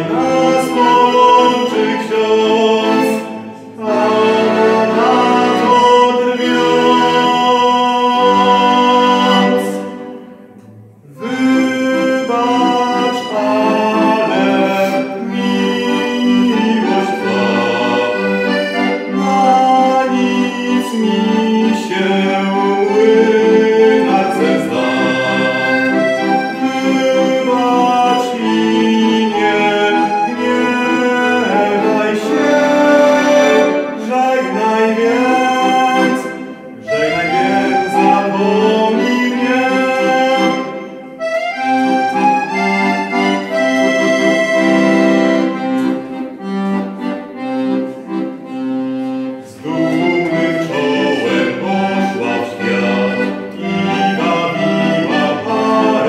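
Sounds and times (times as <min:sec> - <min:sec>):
young man singing: 0:00.0 - 0:09.8, 0:11.1 - 0:18.0, 0:19.1 - 0:25.4, 0:26.6 - 0:40.6
piano accordion playing: 0:00.0 - 0:56.0.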